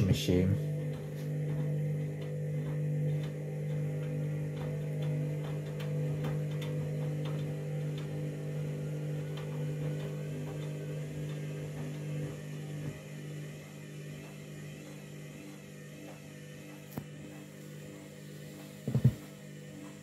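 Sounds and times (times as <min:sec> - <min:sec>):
washing machine motor humming: 0:00.0 - 0:20.0
light irregular ticks: 0:00.8 - 0:08.2.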